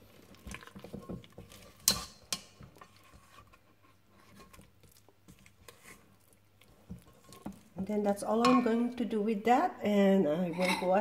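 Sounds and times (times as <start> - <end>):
spatula scraping batter in bowl: 0.4 - 7.8.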